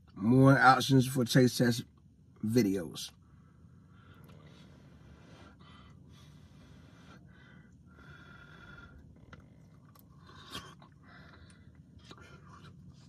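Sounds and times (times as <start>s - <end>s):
man chewing: 9.0s - 13.0s.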